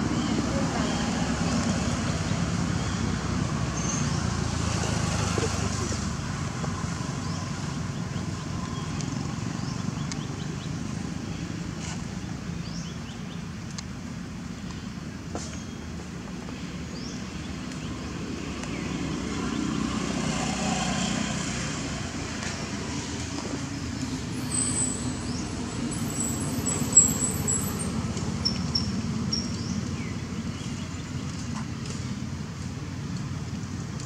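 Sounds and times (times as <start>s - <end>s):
road traffic rumble: 0.0s - 34.0s
vehicle passing: 18.2s - 29.2s.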